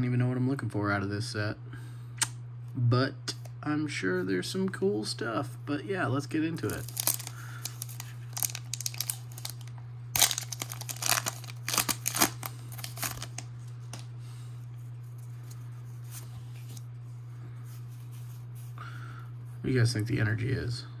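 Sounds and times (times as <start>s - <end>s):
steady low hum: 0.0s - 21.0s
foil wrapper crinkling and tearing: 6.6s - 14.1s.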